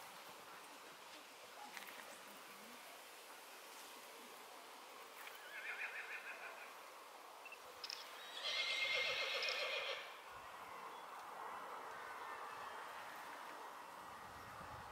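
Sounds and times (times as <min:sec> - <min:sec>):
horse whinnying: 0:05.4 - 0:06.3, 0:08.2 - 0:10.1.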